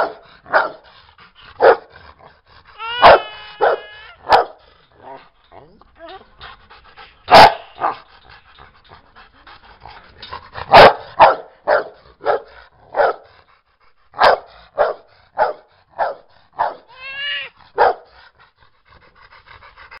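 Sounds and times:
dog barking: 0.0s - 0.8s, 1.6s - 1.9s, 3.0s - 4.6s, 7.3s - 8.0s, 10.7s - 13.3s, 14.2s - 16.9s, 17.7s - 18.1s
dog panting: 0.0s - 20.0s
dog whining: 2.5s - 6.6s, 16.7s - 18.3s.

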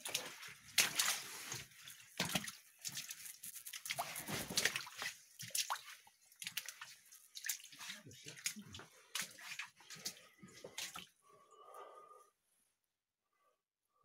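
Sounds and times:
footsteps splashing through water: 0.0s - 11.1s.

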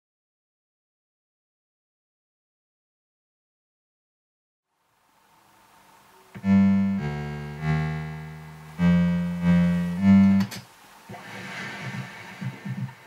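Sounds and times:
low pulsing beat: 6.4s - 10.5s
chiptune synthesizer music: 6.4s - 10.6s.

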